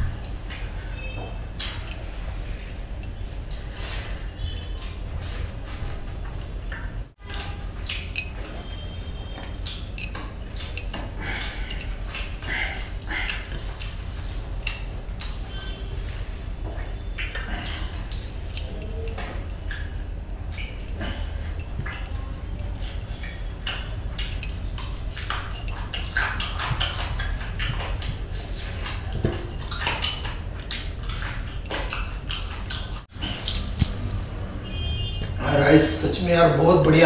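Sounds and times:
steady low hum: 0.0s - 37.0s
person chewing and lip-smacking: 17.0s - 34.1s.

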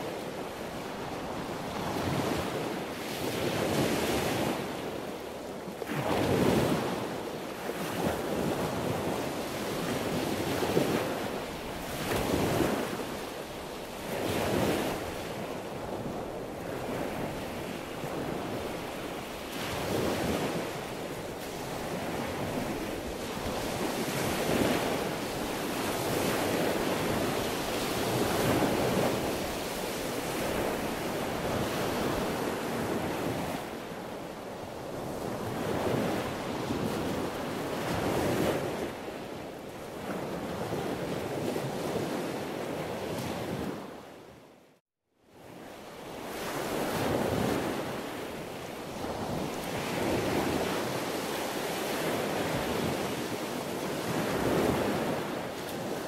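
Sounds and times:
sea waves breaking: 0.0s - 44.0s, 46.0s - 56.0s.

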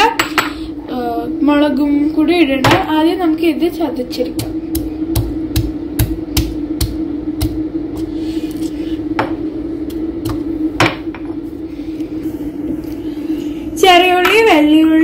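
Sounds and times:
steady low hum: 0.0s - 15.0s
stone pestle pounding in mortar: 4.3s - 7.6s.

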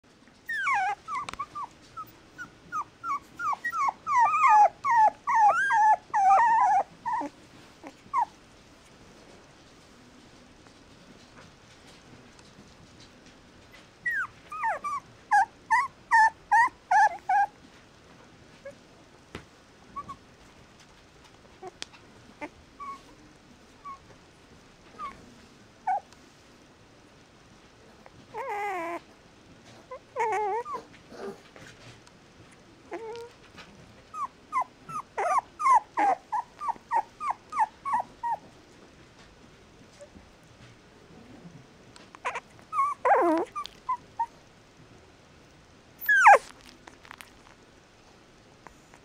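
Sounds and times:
puppies whimpering: 0.5s - 8.3s, 14.0s - 17.5s, 28.3s - 29.0s, 30.2s - 31.4s, 32.9s - 33.3s, 34.1s - 38.5s, 42.2s - 44.3s, 46.0s - 46.6s.

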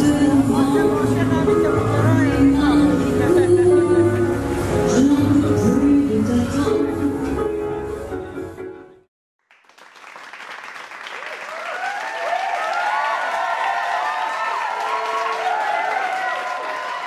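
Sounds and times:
music: 0.0s - 9.1s
crowd clapping: 9.4s - 17.0s.

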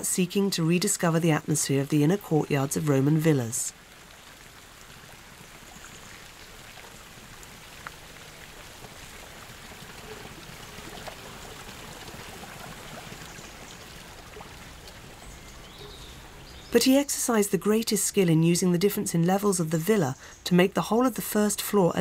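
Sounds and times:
fountain water splashing into pool: 3.7s - 15.7s.

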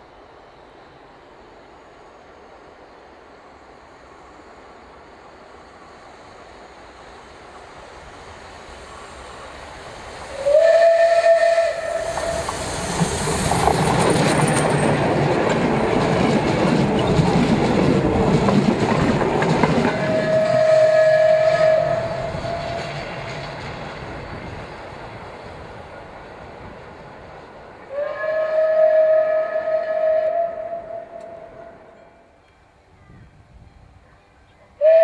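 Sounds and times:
train wheel and running noise: 0.0s - 35.0s
steam locomotive whistle: 10.3s - 13.0s, 19.8s - 23.4s, 27.9s - 32.3s, 34.8s - 35.0s.

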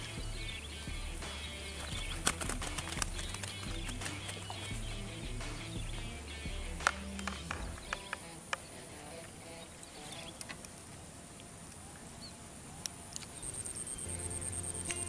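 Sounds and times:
background music: 0.0s - 8.4s, 14.1s - 15.0s
fishing tackle clicks and taps: 6.8s - 8.2s.

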